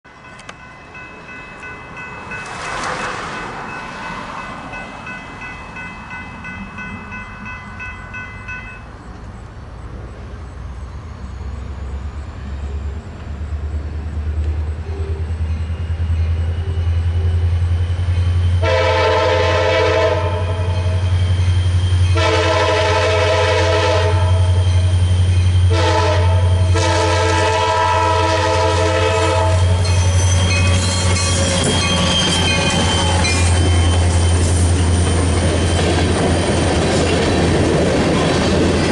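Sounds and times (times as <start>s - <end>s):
rail and wheel noise: 0.0s - 38.9s
crossing bell ringing: 0.1s - 9.3s, 14.8s - 27.2s, 27.8s - 38.9s
diesel locomotive engines rumbling: 0.1s - 38.9s
locomotive horn: 18.6s - 21.2s, 22.1s - 25.0s, 25.6s - 33.3s.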